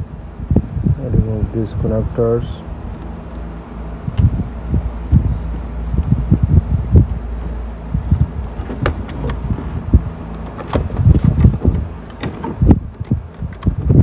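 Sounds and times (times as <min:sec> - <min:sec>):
dull bumps of metal chassis: 0:07.4 - 0:13.8.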